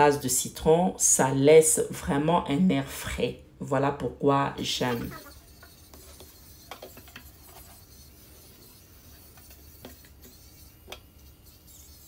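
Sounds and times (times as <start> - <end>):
brush scrubbing metal sink: 4.6 - 12.0.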